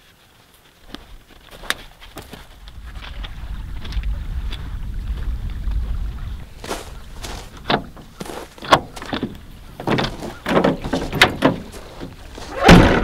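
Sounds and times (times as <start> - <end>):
knocks and clunks: 7.2 - 13.0
heavy thump: 12.5 - 13.0.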